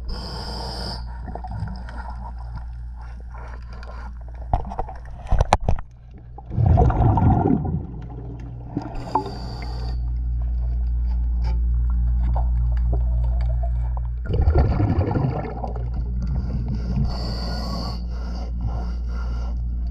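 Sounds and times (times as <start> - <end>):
regulator inhale hiss: 0.0 - 1.2, 8.9 - 10.1, 16.4 - 19.7
steady low drone: 6.0 - 19.9
exhaled bubbles gushing underwater: 6.2 - 9.6, 12.3 - 17.4.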